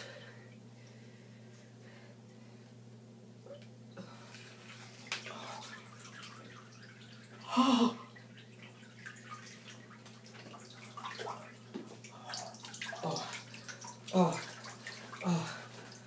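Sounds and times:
water sloshing and dripping: 0:03.5 - 0:16.0.

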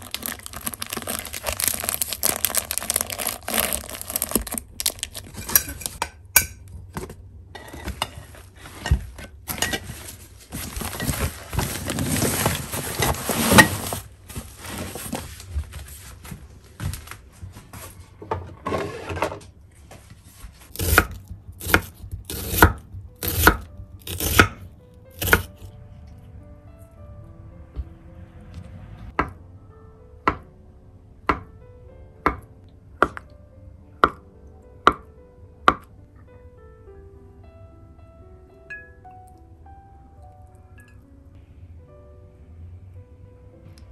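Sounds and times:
rustling and handling noises: 0:00.0 - 0:06.0, 0:06.7 - 0:20.7
knife slicing onion on board: 0:20.7 - 0:24.6, 0:25.2 - 0:25.6.

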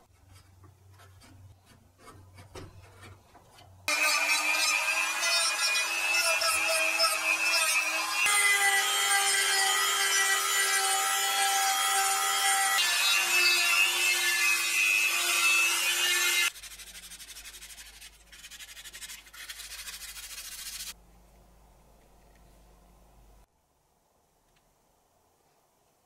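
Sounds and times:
rotary tool sanding wood: 0:03.9 - 0:21.0.

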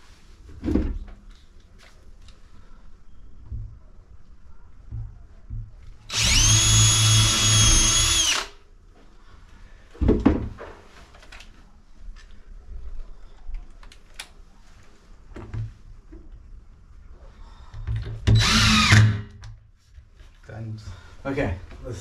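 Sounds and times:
power drill running: 0:06.1 - 0:08.6, 0:18.3 - 0:19.2.

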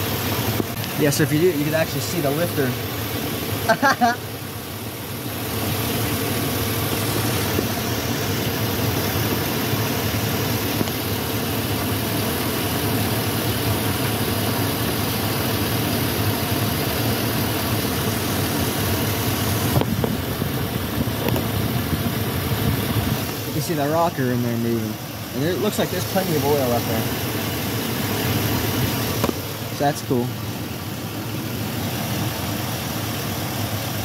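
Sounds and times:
engine idling with valvetrain ticking: 0:00.0 - 0:34.0.

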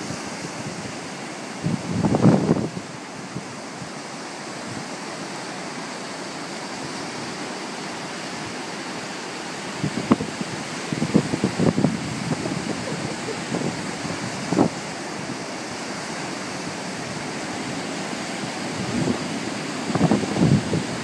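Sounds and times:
wind buffeting microphone: 0:00.0 - 0:03.9, 0:09.8 - 0:15.5, 0:18.5 - 0:21.0
ocean surf breaking on beach: 0:00.0 - 0:21.0.

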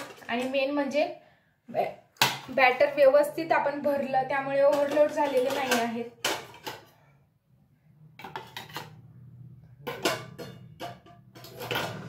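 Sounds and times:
metal bowls clanking on steel: 0:04.5 - 0:07.0, 0:08.2 - 0:12.0.

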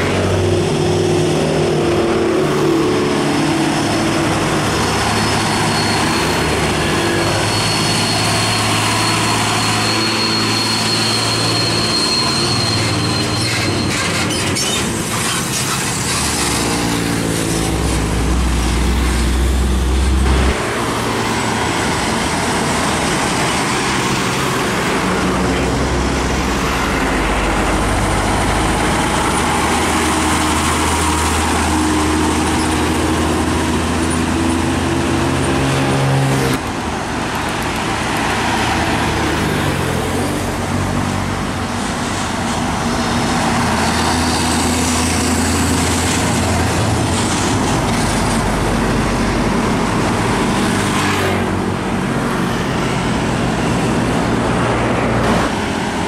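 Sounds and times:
highway traffic passing: 0:00.0 - 0:56.0
diesel engine note climbing: 0:17.6 - 0:20.7.

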